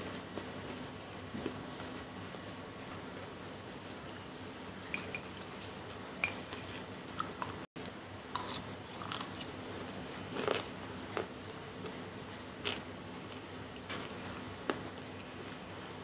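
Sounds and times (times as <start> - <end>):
crunchy chewing: 8.3 - 15.6.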